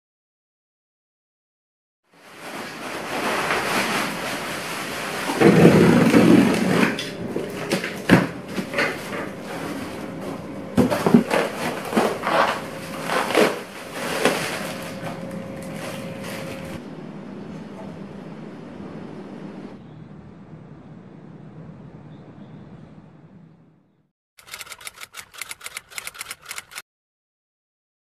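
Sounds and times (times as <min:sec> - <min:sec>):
rustling: 0:02.2 - 0:16.8.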